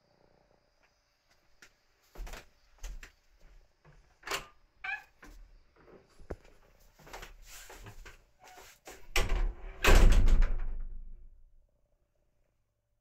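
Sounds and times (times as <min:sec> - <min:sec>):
footsteps on wooden boards: 0:01.3 - 0:04.2
door hinges creaking: 0:04.2 - 0:05.4.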